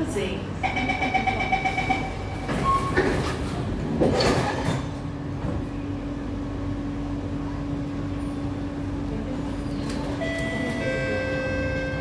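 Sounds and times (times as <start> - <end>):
train humming: 0.0 - 12.0
train doors sliding shut: 1.8 - 5.8.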